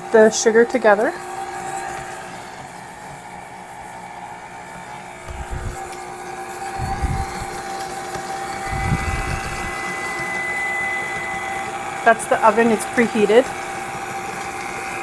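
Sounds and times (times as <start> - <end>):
stand mixer motor whine: 0.0 - 15.0
high electronic tone: 6.7 - 7.6, 8.5 - 11.4.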